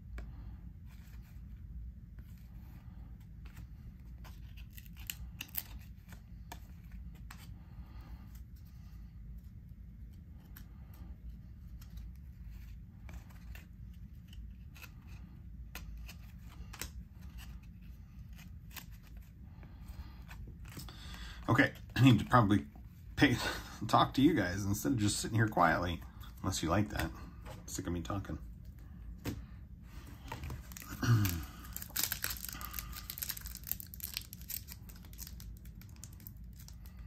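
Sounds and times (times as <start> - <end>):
low steady hum: 0.0 - 37.0
cards clicking and rustling: 0.1 - 7.6, 11.5 - 22.8, 30.2 - 37.0.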